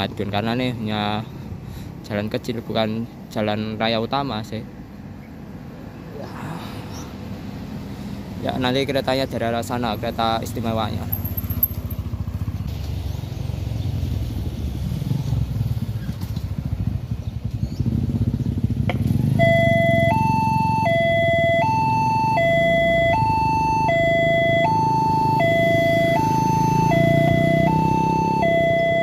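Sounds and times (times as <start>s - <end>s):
motorcycle engines running: 0.0s - 29.0s
two-tone level-crossing alarm: 19.4s - 29.0s.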